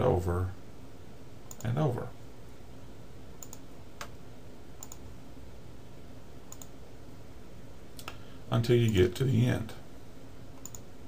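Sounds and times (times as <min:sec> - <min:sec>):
faint steady hiss: 0:00.0 - 0:11.0
computer mouse clicking: 0:01.5 - 0:01.7, 0:03.4 - 0:04.2, 0:04.8 - 0:05.0, 0:06.5 - 0:06.8, 0:10.6 - 0:10.9.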